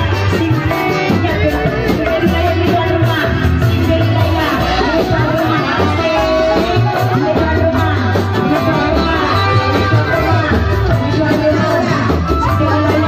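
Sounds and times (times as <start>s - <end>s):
amplified live band music: 0.0s - 13.0s
woman singing into microphone: 0.0s - 13.0s.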